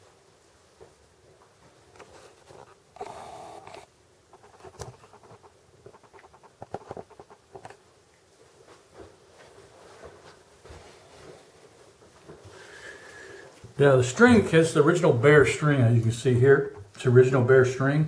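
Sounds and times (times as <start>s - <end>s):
short rustle: 4.3s - 14.5s.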